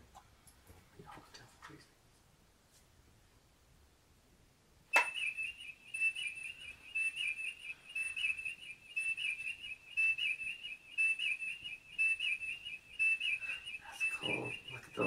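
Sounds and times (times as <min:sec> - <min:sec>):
high warbling electronic beeps: 0:08.0 - 0:15.0.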